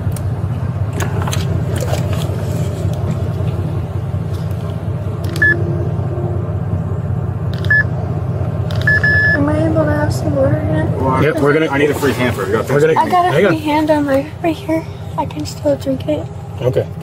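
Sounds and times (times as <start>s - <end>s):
vehicle engine idling: 0.0s - 17.0s
short high beeps: 7.6s - 7.9s, 8.8s - 9.4s.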